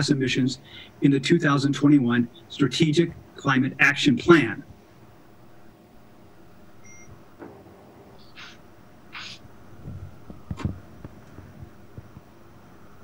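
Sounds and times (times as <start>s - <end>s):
high beep: 6.8s - 7.1s
breath-like hisses: 8.2s - 9.4s.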